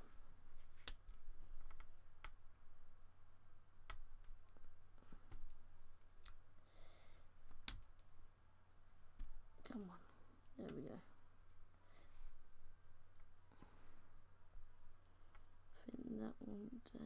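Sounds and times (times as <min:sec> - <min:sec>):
soft rustle: 0:00.0 - 0:02.2, 0:08.8 - 0:15.8
low steady hum: 0:00.0 - 0:17.0.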